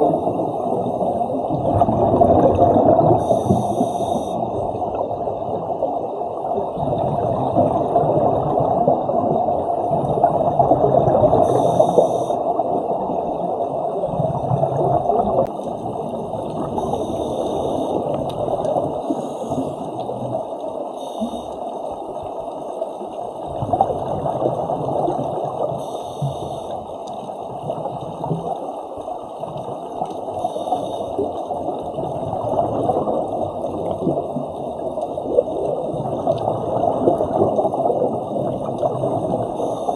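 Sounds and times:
underwater bubbles rushing and gurgling: 0.0 - 39.9
faint hiss: 3.1 - 5.0, 11.3 - 12.6, 15.6 - 22.9, 25.5 - 27.8, 30.2 - 31.7, 39.1 - 39.9.

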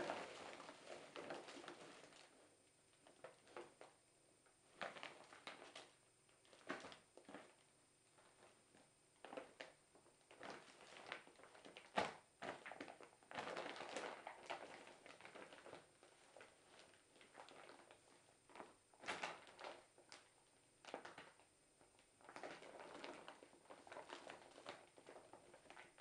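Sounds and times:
cat scrabbling in cloth bag: 0.0 - 2.3.

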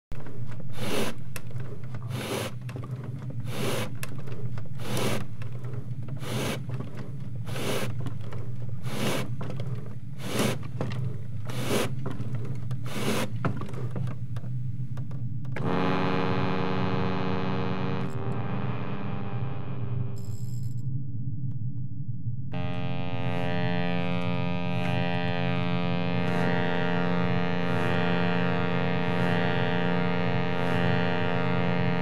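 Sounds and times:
steady low hum: 0.2 - 32.0
rhythmic rasping scrapes: 0.6 - 14.0.

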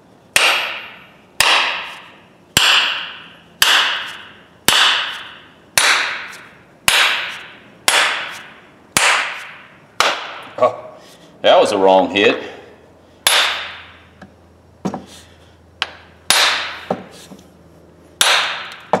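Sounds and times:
hammer head striking workbench: 0.4 - 10.6, 13.2 - 14.0, 15.8 - 17.1, 18.2 - 19.0.

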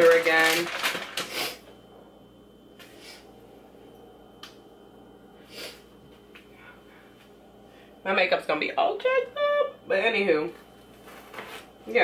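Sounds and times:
plastic bag rustling: 0.0 - 1.6.

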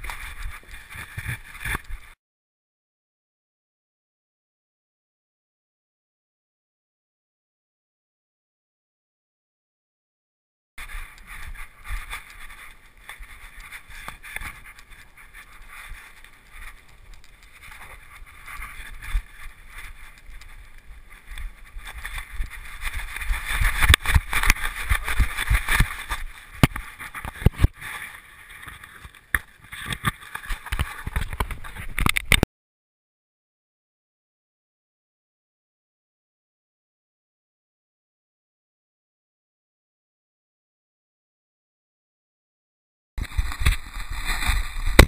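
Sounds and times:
camera mount rustling and knocking: 23.2 - 27.9, 28.6 - 32.4.

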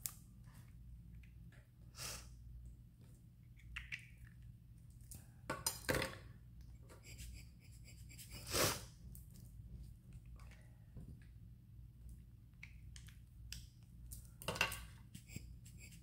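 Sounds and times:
faint steady hum: 0.0 - 16.0
air blower puffs: 8.2 - 8.9.

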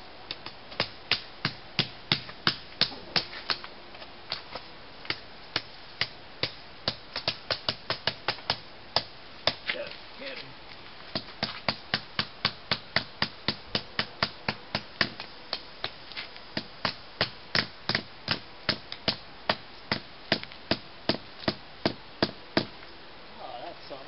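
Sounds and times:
hammer striking a tent stake: 0.3 - 3.6, 5.1 - 9.6, 11.1 - 16.0, 16.6 - 22.7.

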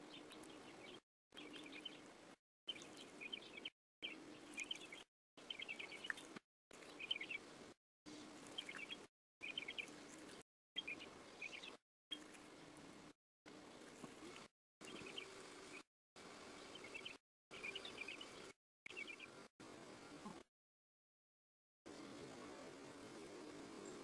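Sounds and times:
faint bird chirps: 0.0 - 2.1, 2.7 - 7.5, 8.5 - 12.4, 13.7 - 15.8, 16.5 - 20.4.

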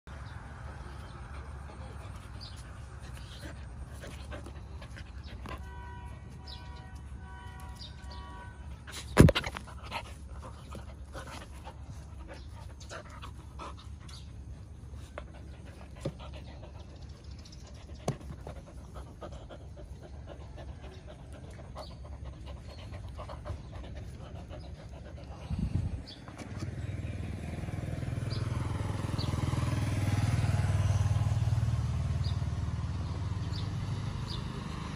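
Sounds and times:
dogs panting and snuffling: 0.1 - 7.1, 8.6 - 27.0.

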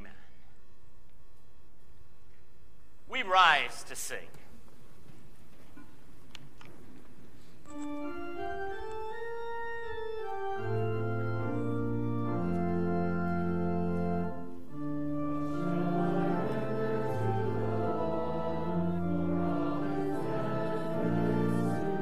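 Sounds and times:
church organ chords: 7.7 - 22.0.

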